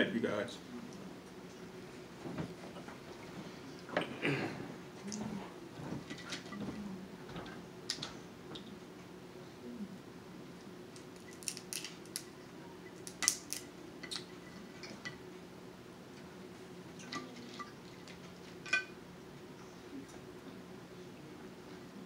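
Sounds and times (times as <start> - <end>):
crab shells cracking: 10.9 - 12.4, 13.0 - 14.3.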